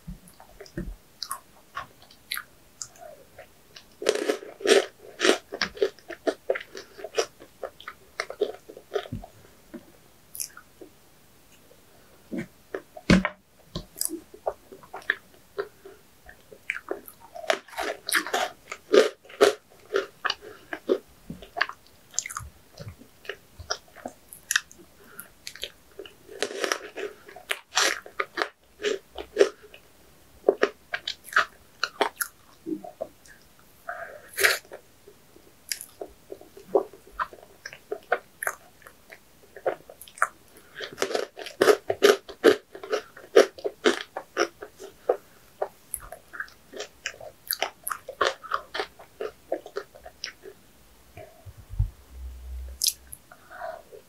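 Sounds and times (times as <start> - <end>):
person chewing crunchy food: 0.6 - 9.3, 13.9 - 29.8, 30.4 - 33.4, 35.7 - 50.6.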